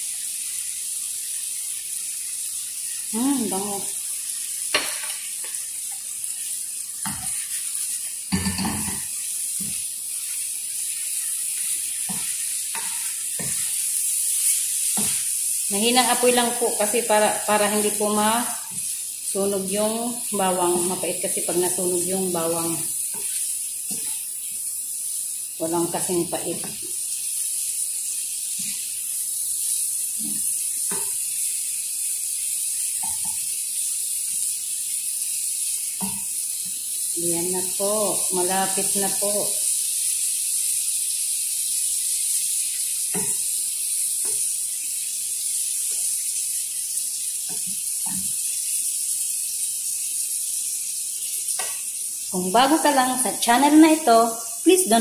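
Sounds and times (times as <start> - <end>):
shrimp sizzling in a pan: 0.0 - 55.0
spatula scraping a pan: 4.6 - 18.9, 20.4 - 24.3.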